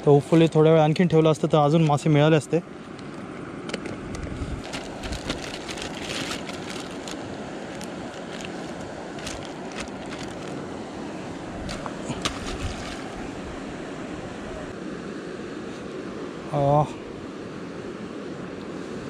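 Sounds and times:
plastic bag crinkling: 4.6s - 10.6s.

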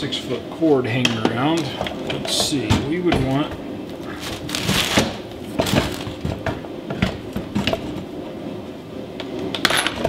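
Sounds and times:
clunks and rattles of metal stand: 4.4s - 8.1s.

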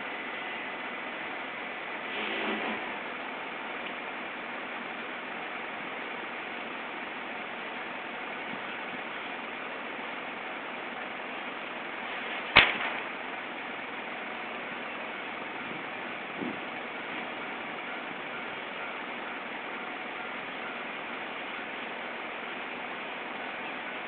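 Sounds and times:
cars queued in traffic: 0.0s - 24.0s
sharp snap: 12.5s - 13.1s.

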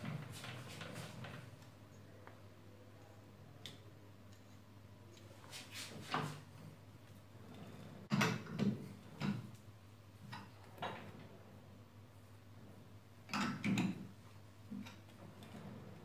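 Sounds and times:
faint steady hum: 0.0s - 16.0s
lathe chuck knocks and clunks: 8.1s - 9.6s.

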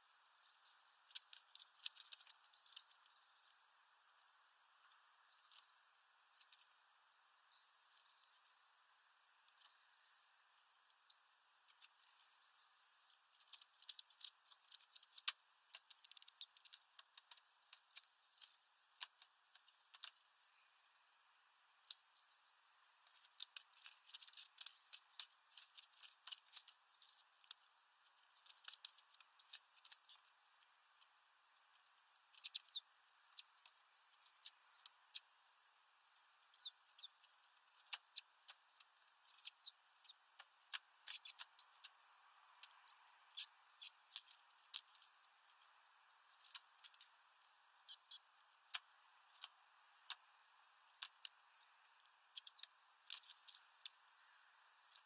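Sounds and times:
birds pecking at feeder bag: 0.1s - 6.8s, 10.5s - 55.0s
short high-pitched bird chirps: 47.8s - 48.2s, 52.4s - 52.7s.

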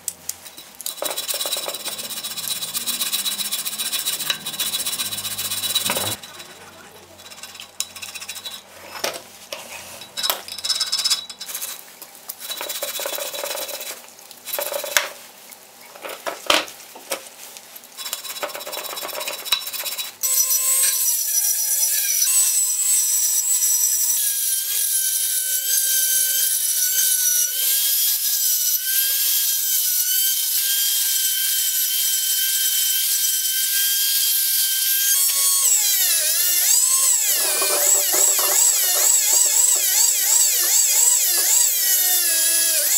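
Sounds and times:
rotary tool grinding whine: 0.6s - 9.1s, 12.4s - 15.2s, 18.0s - 42.9s
chisel scraping metal: 0.8s - 11.8s, 12.4s - 15.1s, 18.0s - 22.9s, 34.2s - 42.9s.

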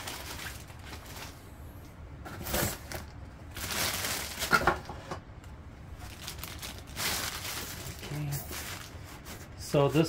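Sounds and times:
packaging rustling: 0.0s - 1.4s, 2.4s - 4.9s, 6.0s - 9.6s.

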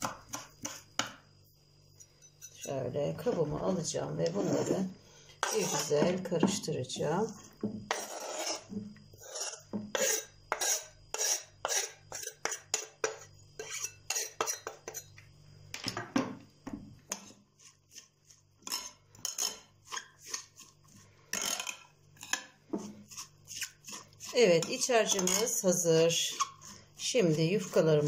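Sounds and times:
knife scraping on cutting board: 0.3s - 0.9s, 4.2s - 6.2s, 7.3s - 15.1s, 17.1s - 25.5s, 26.2s - 27.9s.

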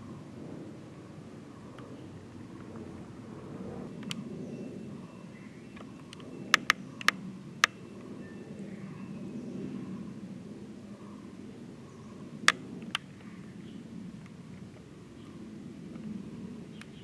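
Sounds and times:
sharp clicks: 5.8s - 7.8s.

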